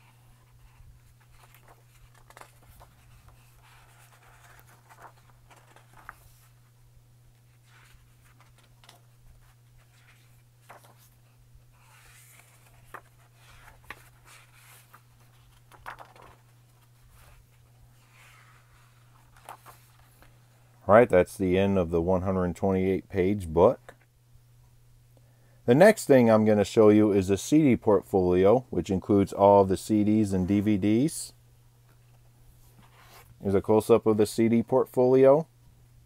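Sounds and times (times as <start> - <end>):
book pages turning: 0.0 - 6.7, 7.4 - 20.4
steady low hum: 0.0 - 25.8.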